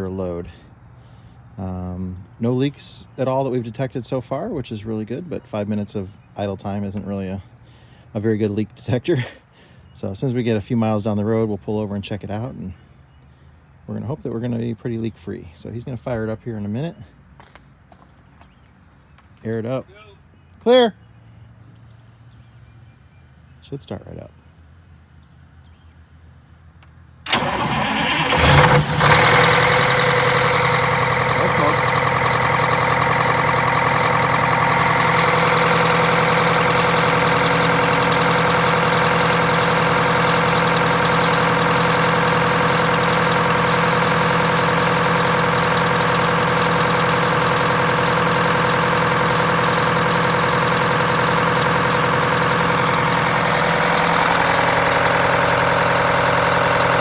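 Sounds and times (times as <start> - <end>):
diesel engine cranking and idling: 0.0 - 17.7, 20.3 - 57.0.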